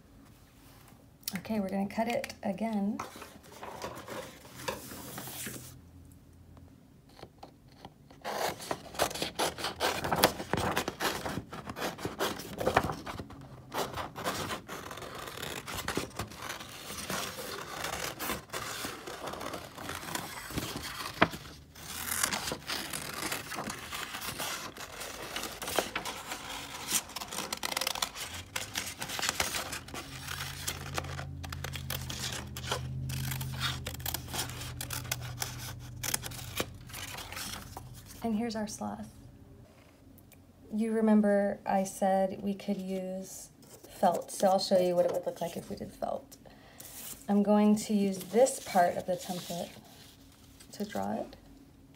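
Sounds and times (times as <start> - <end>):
paper scraping against blades: 13.8 - 37.8
scissors snipping paper: 22.2 - 37.3.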